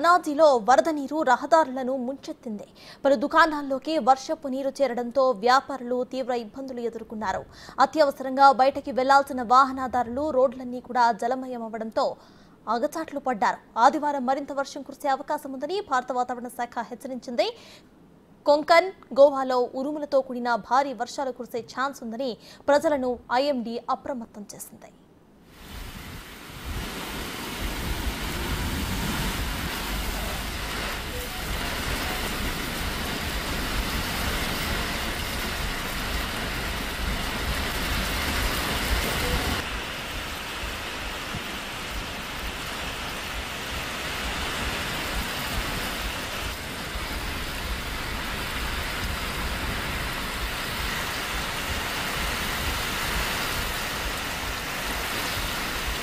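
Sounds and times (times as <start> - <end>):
heavy rain pouring: 25.5 - 56.0.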